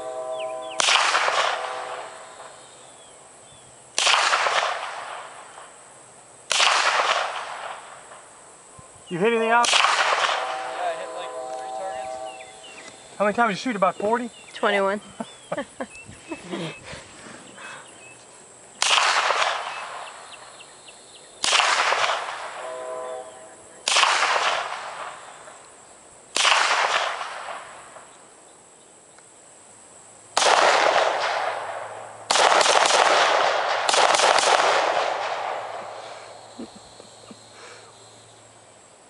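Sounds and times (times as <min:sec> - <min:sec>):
rifle shots echoing: 0:00.7 - 0:02.6, 0:04.0 - 0:05.7, 0:06.5 - 0:08.2, 0:09.5 - 0:12.6, 0:18.8 - 0:20.2, 0:21.4 - 0:22.6, 0:23.8 - 0:25.4, 0:26.3 - 0:27.9, 0:30.4 - 0:36.0.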